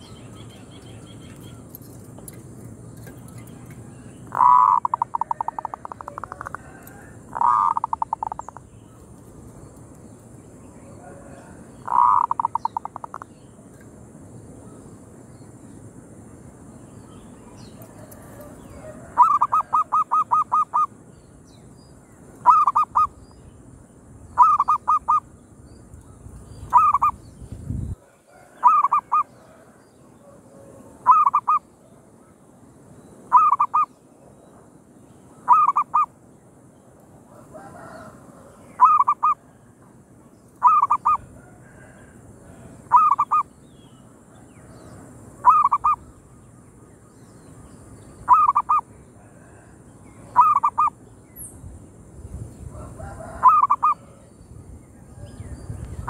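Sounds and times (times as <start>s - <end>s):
dove calling: 2.9s - 9.3s, 10.9s - 13.3s, 17.7s - 21.0s, 22.4s - 23.2s, 24.4s - 25.3s, 26.6s - 31.8s, 33.2s - 33.9s, 35.4s - 36.2s, 37.3s - 39.7s, 40.6s - 43.5s, 44.4s - 46.2s, 48.2s - 51.0s, 52.7s - 54.3s.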